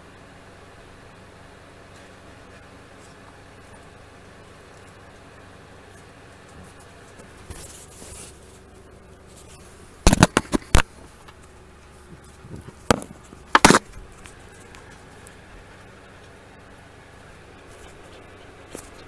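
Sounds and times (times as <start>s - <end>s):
faint scraping rustle: 6.6s - 15.3s
hard objects knocking together: 10.0s - 10.9s, 12.5s - 13.9s.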